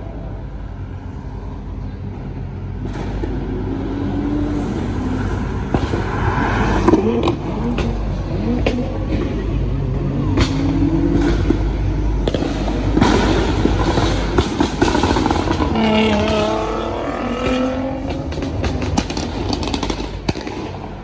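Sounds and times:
car engine revving past: 0:02.9 - 0:19.9
exhaust pops and crackles: 0:10.3 - 0:21.0.

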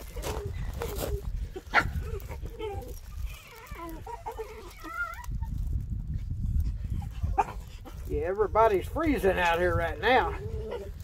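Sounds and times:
puppies whimpering: 0:00.0 - 0:05.7, 0:10.0 - 0:11.0.

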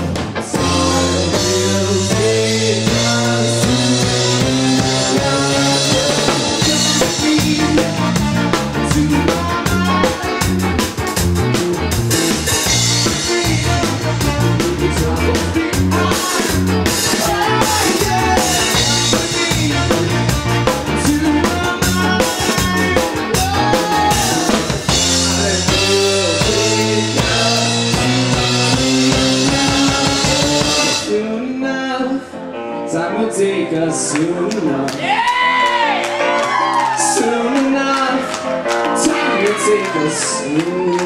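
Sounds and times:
person singing: 0:00.0 - 0:10.8, 0:12.8 - 0:41.0
rock band playing: 0:00.0 - 0:31.5, 0:32.5 - 0:41.0.

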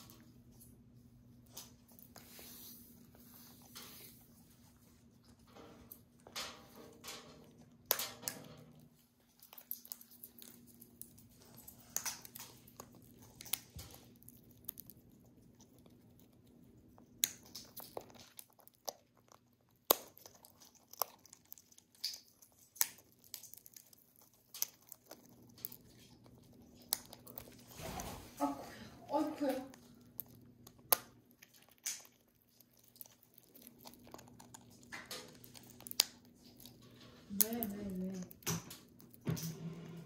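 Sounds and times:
bird beak cracking nut shells: 0:06.4 - 0:08.8, 0:09.4 - 0:16.5, 0:17.1 - 0:27.7, 0:29.8 - 0:39.2.

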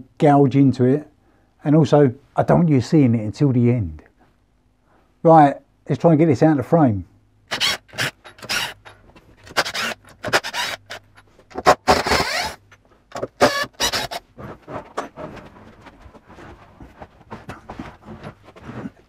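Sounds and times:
cordless drill running: 0:07.5 - 0:12.6, 0:13.4 - 0:14.2
knocks and scrapes: 0:08.0 - 0:19.0.

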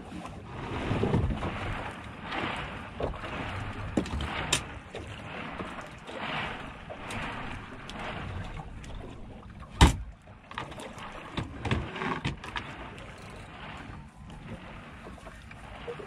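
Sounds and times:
water lapping against boat hull: 0:00.0 - 0:16.0
knocks on boat hull: 0:09.8 - 0:10.1.

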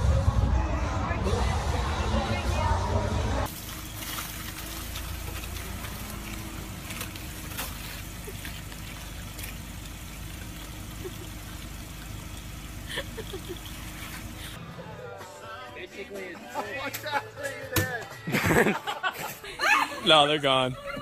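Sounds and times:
steady outdoor hiss: 0:01.3 - 0:14.6.

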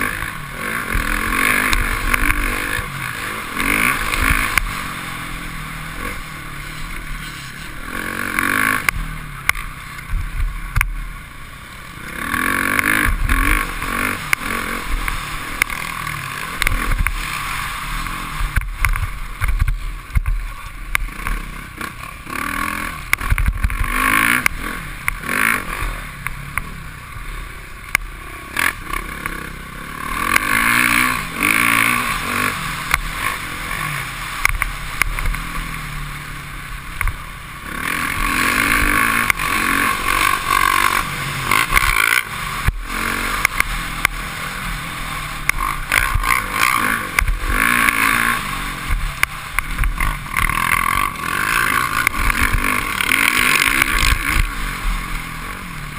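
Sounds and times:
motocross bike engine revving: 0:00.0 - 0:55.9.

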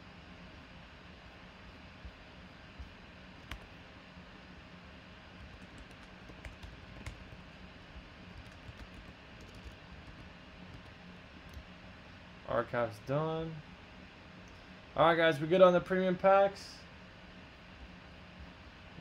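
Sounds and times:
keyboard typing clicks: 0:03.4 - 0:03.7, 0:05.5 - 0:07.3, 0:08.4 - 0:11.7.

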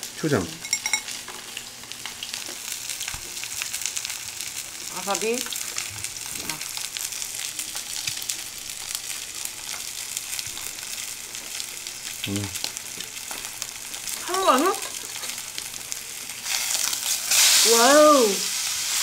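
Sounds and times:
steak sizzling on grill pan: 0:00.0 - 0:19.0
short vocal sounds: 0:12.3 - 0:12.6.

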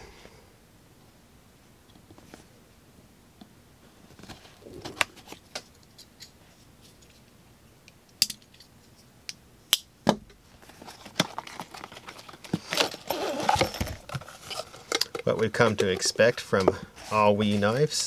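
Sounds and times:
nylon case being handled: 0:10.6 - 0:16.7
cardboard rustling: 0:10.6 - 0:17.9.

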